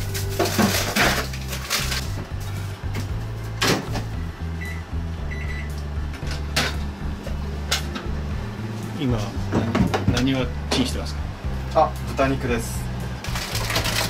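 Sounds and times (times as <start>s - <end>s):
short keypad beeps: 4.6s - 5.7s.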